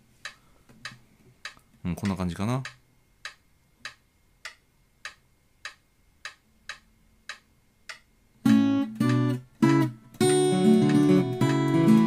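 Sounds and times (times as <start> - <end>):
metronome ticking: 0.3 - 12.0
acoustic guitar fingerpicking: 8.4 - 12.0.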